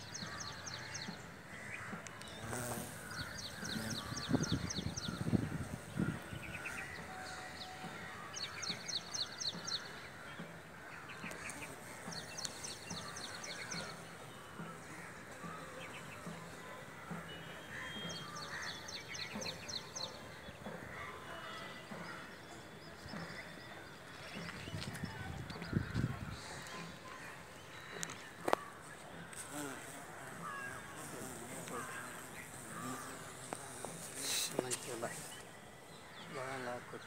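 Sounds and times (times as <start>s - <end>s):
outdoor hiss: 29.2s - 36.9s.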